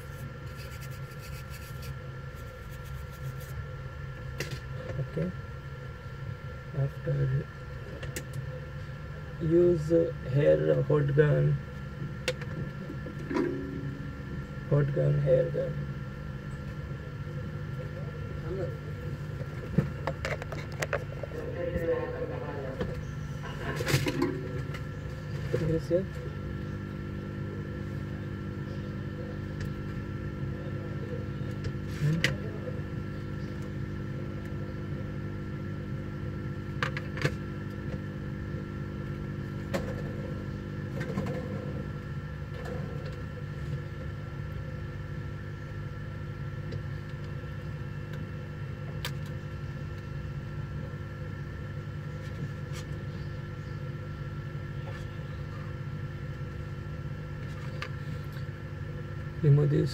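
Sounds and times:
hot-air blower humming: 0.0s - 59.9s.

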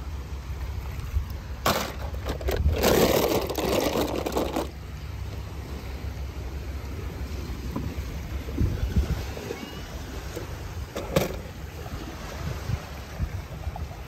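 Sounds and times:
handling noise scraping and rattling: 1.6s - 5.4s, 10.3s - 11.6s
wind rumble on microphone: 2.2s - 4.7s, 7.0s - 14.0s.

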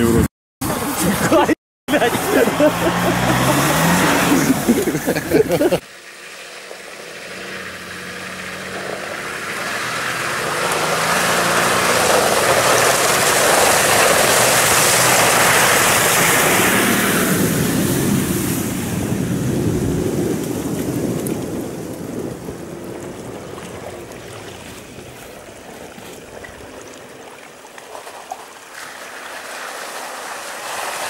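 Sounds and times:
water splashing: 0.6s - 31.0s
off-road vehicle engine passing: 1.9s - 26.2s
vehicle engine under load: 1.9s - 26.3s.

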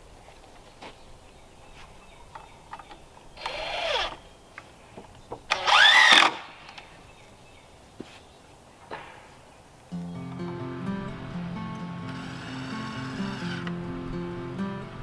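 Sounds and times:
cordless drill driving screws: 3.4s - 4.2s, 5.5s - 6.5s, 12.1s - 13.8s.

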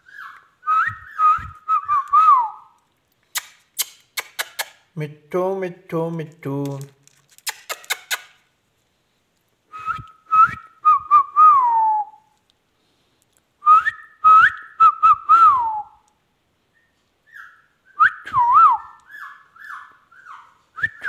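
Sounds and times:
parrot whistling: 0.0s - 2.8s, 16.7s - 21.0s
sharp clicks: 2.8s - 4.8s.

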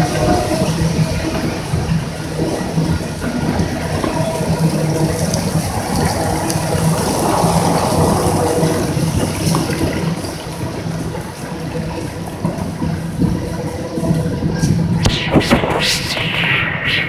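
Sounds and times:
low hum: 4.6s - 9.8s, 14.8s - 17.0s.

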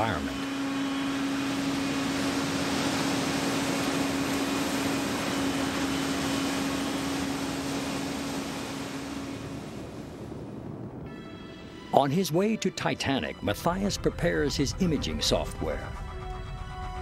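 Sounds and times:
machinery hum: 0.0s - 11.9s.

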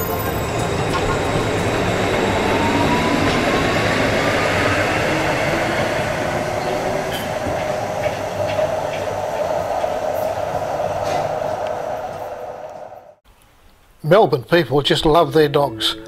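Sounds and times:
motor whine rising in pitch: 0.0s - 8.4s
tram wheels and motors rumbling: 0.0s - 13.2s.

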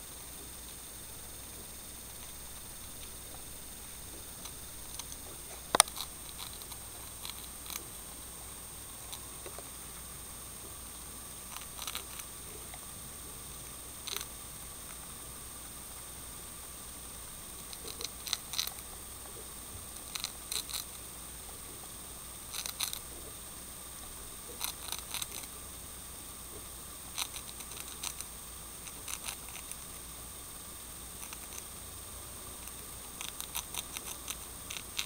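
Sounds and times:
hamster crunching a cracker: 2.1s - 8.0s, 11.5s - 12.8s, 13.6s - 15.0s, 17.5s - 21.0s, 22.4s - 23.2s, 24.4s - 25.6s, 26.5s - 30.1s, 31.2s - 31.8s, 32.5s - 35.0s.

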